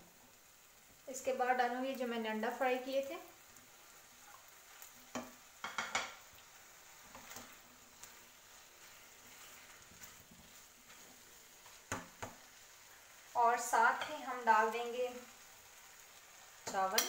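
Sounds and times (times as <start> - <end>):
food sizzling in a wok: 0.0 - 17.0
spatula scraping and knocking pan: 4.3 - 12.6.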